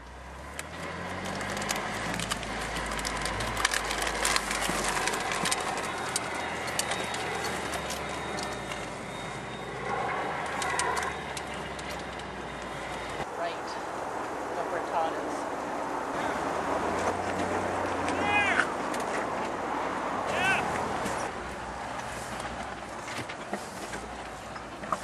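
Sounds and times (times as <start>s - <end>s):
rough tyre noise on gravel: 0.0s - 13.3s
stones clicking and rattling: 0.6s - 8.8s.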